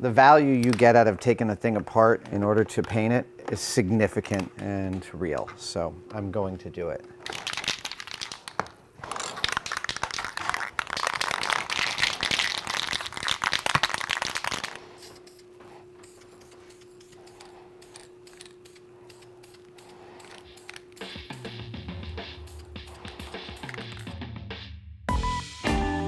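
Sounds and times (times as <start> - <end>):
faint steady hum: 0.0 - 24.0
spray cans rattling: 7.2 - 15.4, 16.0 - 21.2, 22.5 - 24.1.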